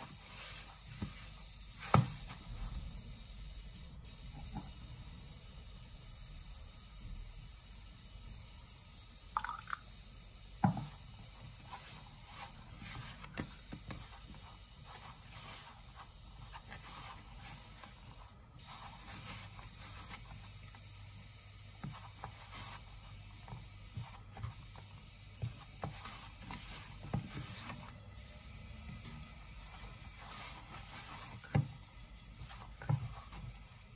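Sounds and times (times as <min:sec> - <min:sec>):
hands mixing dough rustling: 0:28.9 - 0:33.9.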